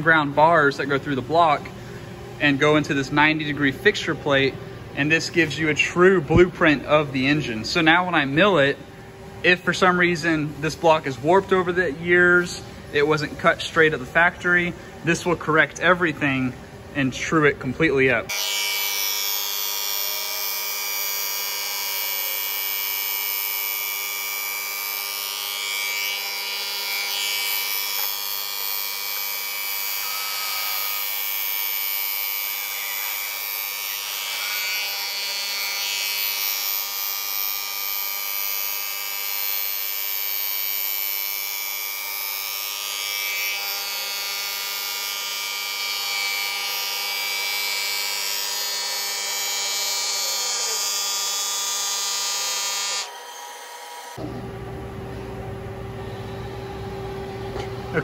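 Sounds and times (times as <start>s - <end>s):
milling machine whine: 18.2s - 58.0s.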